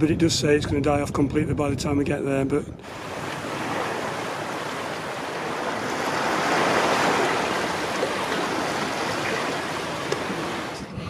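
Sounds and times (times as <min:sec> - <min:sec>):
water rushing along a hull: 0:02.8 - 0:11.0.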